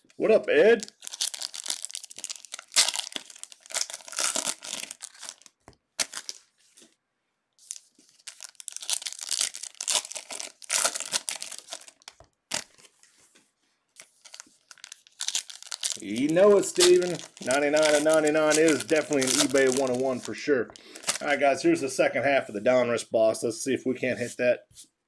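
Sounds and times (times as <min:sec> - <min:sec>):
foil pack tearing and crinkling: 0:00.8 - 0:06.5, 0:07.6 - 0:12.9, 0:14.0 - 0:21.2.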